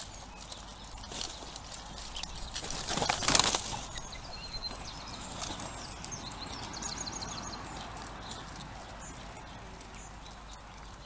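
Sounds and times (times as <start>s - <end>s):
birds flapping wings: 0.0s - 6.2s
songbirds chirping: 0.0s - 11.0s.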